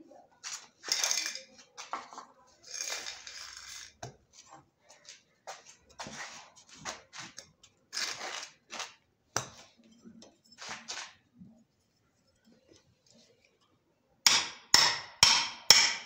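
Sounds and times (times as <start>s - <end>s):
chisel scraping wood: 7.2s - 9.0s.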